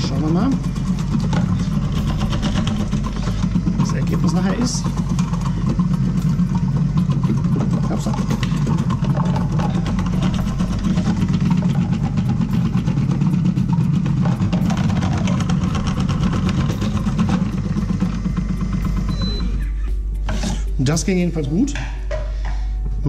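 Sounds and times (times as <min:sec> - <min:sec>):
rapid rattling clicks: 0:00.0 - 0:19.4
food processor motor hum: 0:00.0 - 0:19.7.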